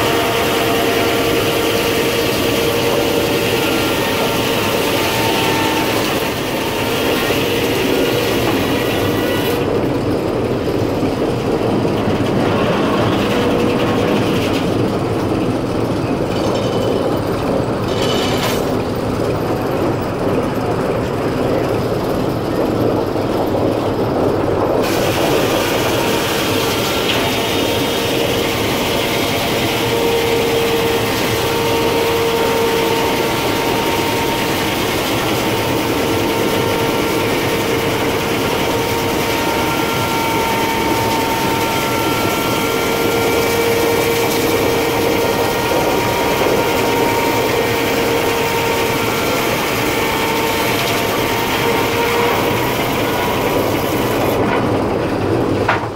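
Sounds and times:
circular saw blade whine: 0.0 - 9.7, 24.8 - 54.6
sawmill mechanical din: 0.0 - 55.9.

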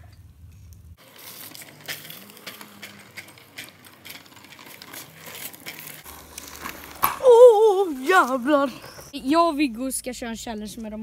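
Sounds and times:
small wheels rattling on asphalt: 1.0 - 9.4.

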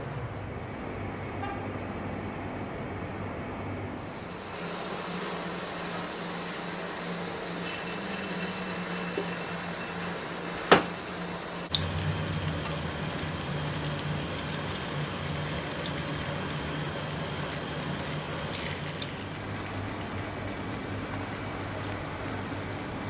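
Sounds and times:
food sizzling in hot oil: 7.5 - 19.3.

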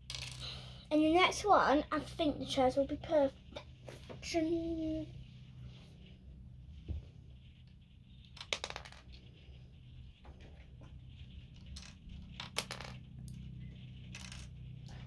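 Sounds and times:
plastic toy bricks clicking: 11.6 - 13.0.

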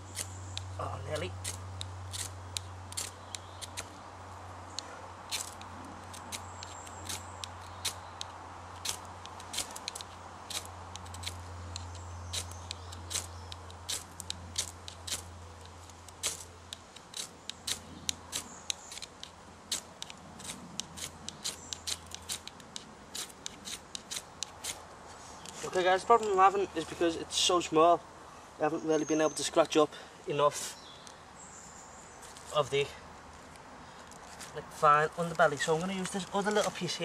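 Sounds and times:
knife scraping ferrocerium rod: 0.0 - 3.9, 8.8 - 24.8.

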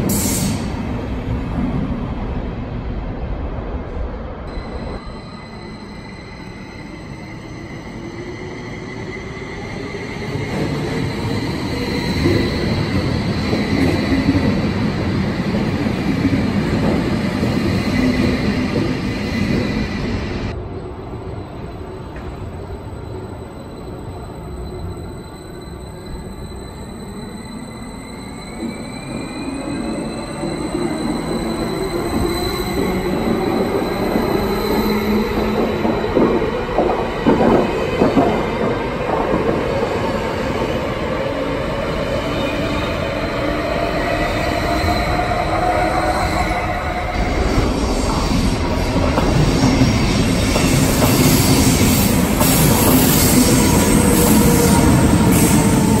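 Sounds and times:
train wheels rumbling: 28.6 - 56.0.

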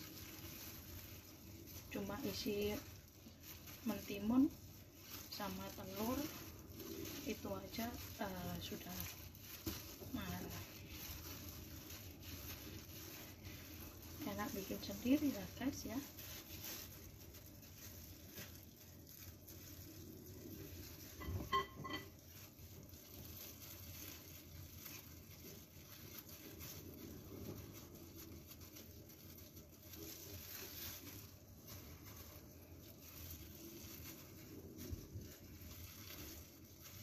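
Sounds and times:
plastic gloves rustling: 0.0 - 37.0.

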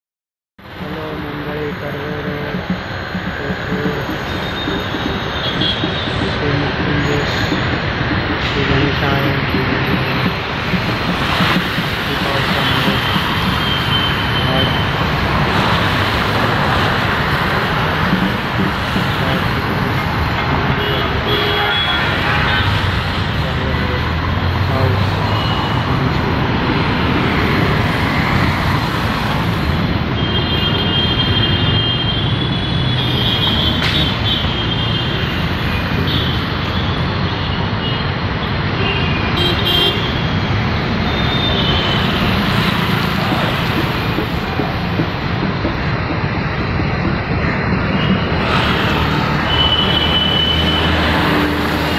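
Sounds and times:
road traffic rushing: 0.6 - 51.9
vehicle horn toot: 20.8 - 22.8, 38.8 - 40.3.

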